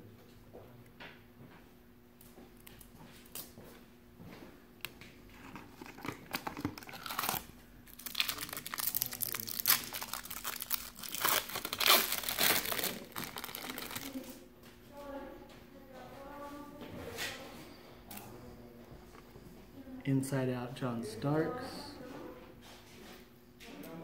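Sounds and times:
foil wrapper crinkling: 5.3s - 14.4s.

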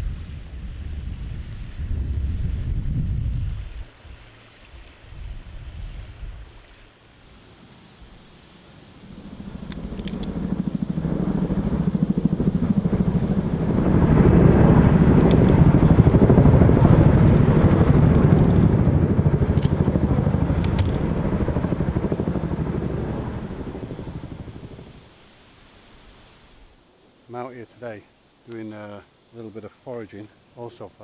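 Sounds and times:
helicopter rotor beat: 8.1s - 25.1s.

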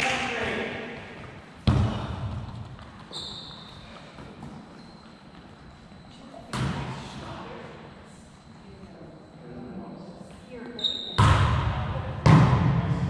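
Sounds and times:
volleyball smack echoing in gym: 0.0s - 2.9s, 6.5s - 7.1s, 11.1s - 13.0s.

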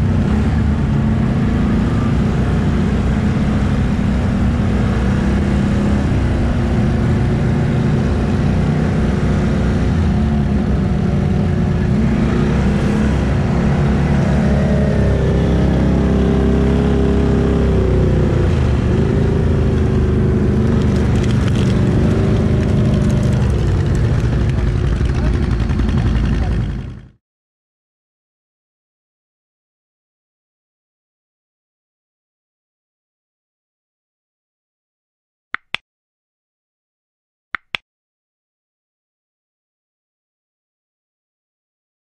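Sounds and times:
atv engine revving: 0.0s - 27.1s.

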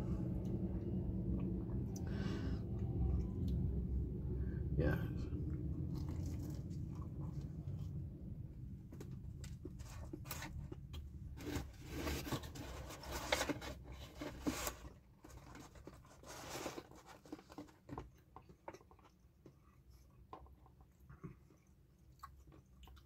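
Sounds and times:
chewing a sandwich: 5.4s - 8.3s, 14.8s - 23.0s
crunching and rustling: 5.8s - 7.9s.

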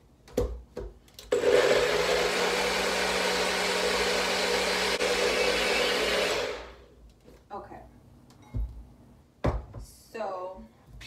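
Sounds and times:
blender motor whirring: 1.3s - 6.9s.

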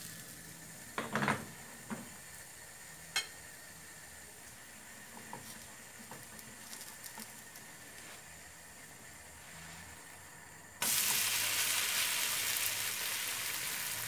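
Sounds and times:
batter sizzling in frying pan: 0.0s - 14.0s
small crackles: 4.4s - 8.3s.

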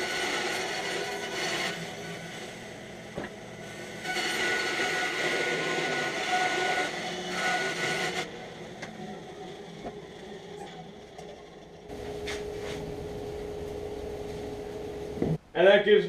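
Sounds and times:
bandsaw cutting wood: 0.0s - 2.6s, 4.0s - 8.3s.

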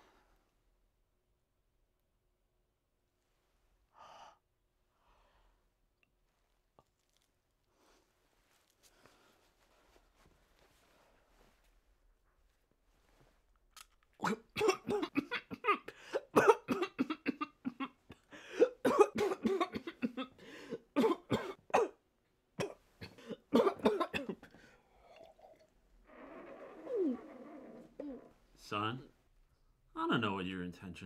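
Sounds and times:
person coughing: 14.2s - 20.4s, 21.0s - 22.0s, 22.6s - 24.5s.

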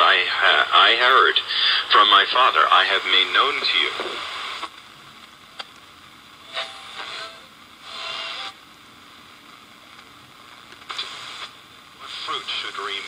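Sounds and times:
broadcaster speaking: 0.0s - 4.2s, 12.0s - 13.0s
radio static hiss: 0.0s - 13.0s.

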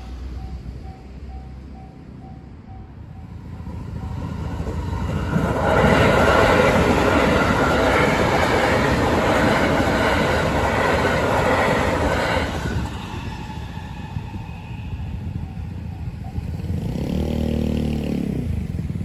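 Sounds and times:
level crossing warning bell: 0.0s - 5.0s, 15.3s - 16.7s
train wheels clattering on rails: 3.9s - 14.7s.

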